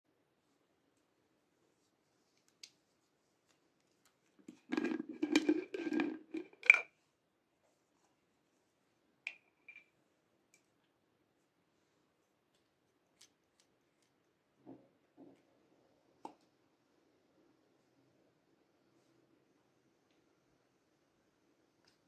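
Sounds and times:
jar lid squeaky grinding: 4.7 - 6.8.

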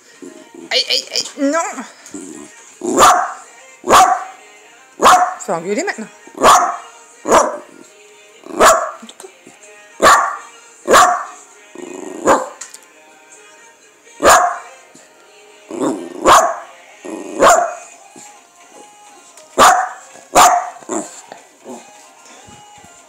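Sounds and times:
small dog barking sharply: 19.6 - 20.8.

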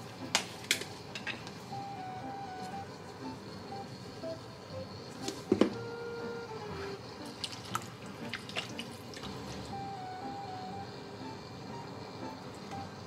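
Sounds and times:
faint background music: 0.0 - 13.0
liquid sloshing and dripping: 7.3 - 9.7.

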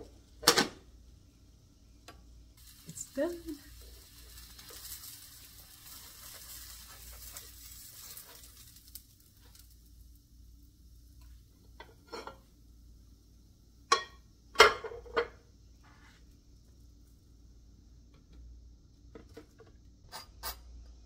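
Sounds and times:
sandwich sizzling in butter: 2.6 - 12.5.

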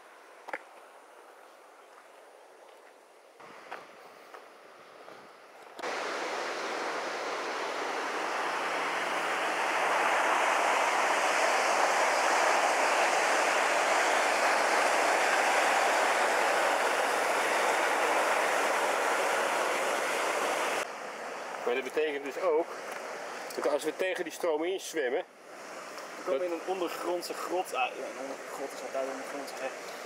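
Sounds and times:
waterfall rushing: 5.8 - 20.8.

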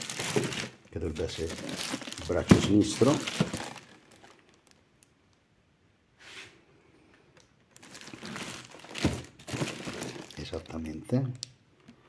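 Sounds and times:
plastic wrapping crinkling: 0.0 - 5.1, 7.7 - 11.4.

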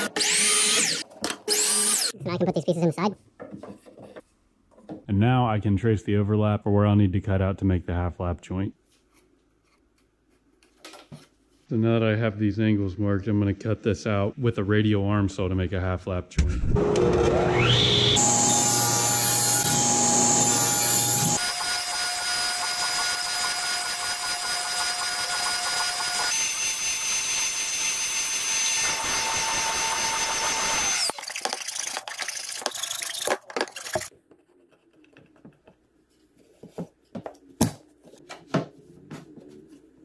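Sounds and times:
radial arm saw cutting wood: 16.8 - 31.1.

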